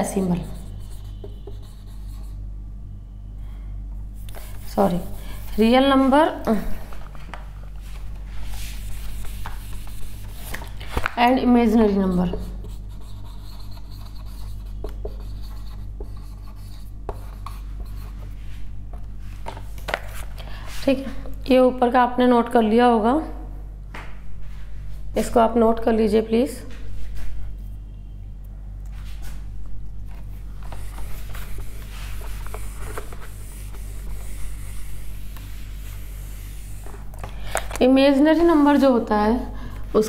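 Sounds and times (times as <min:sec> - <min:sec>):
steady low hum: 0:00.0 - 0:40.0
marker rubbing on whiteboard: 0:00.2 - 0:02.4, 0:04.2 - 0:06.1, 0:08.5 - 0:10.6, 0:11.8 - 0:18.2, 0:30.7 - 0:37.0.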